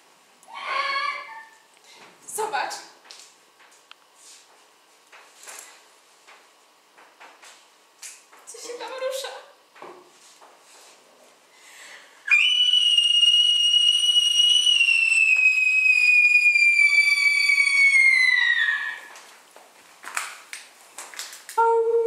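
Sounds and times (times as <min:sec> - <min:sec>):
loud shrill whistle: 0:00.5 - 0:01.6, 0:12.3 - 0:19.1.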